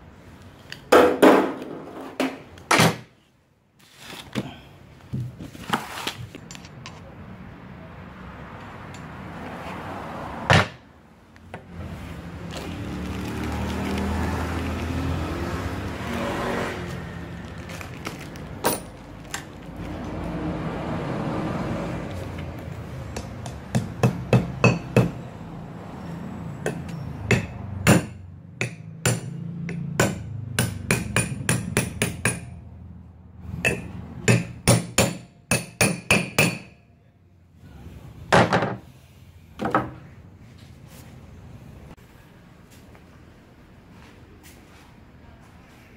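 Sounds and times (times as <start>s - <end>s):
hammer striking metal: 23.2s - 25.2s, 26.6s - 32.6s, 33.6s - 36.8s.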